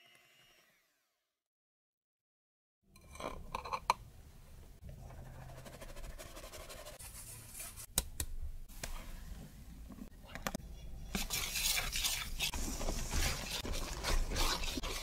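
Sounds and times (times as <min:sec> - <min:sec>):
whisk scraping steel bowl: 0:10.8 - 0:15.0.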